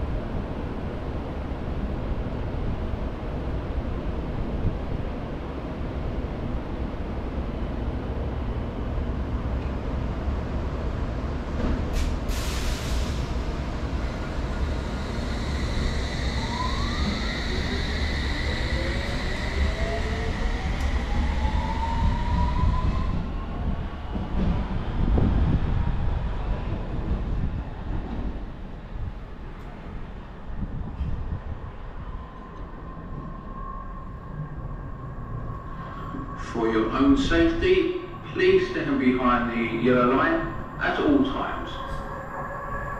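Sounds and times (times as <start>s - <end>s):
train rumble: 0.0s - 42.9s
burst of hiss: 12.0s - 13.3s.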